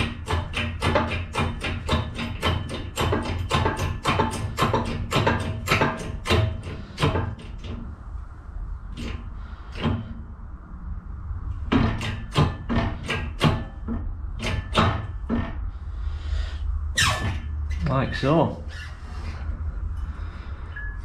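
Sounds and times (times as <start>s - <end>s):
hydraulic press clicking and knocking: 0.0s - 7.9s, 8.9s - 10.2s, 11.5s - 15.6s
low hum: 7.6s - 13.0s, 13.6s - 21.0s.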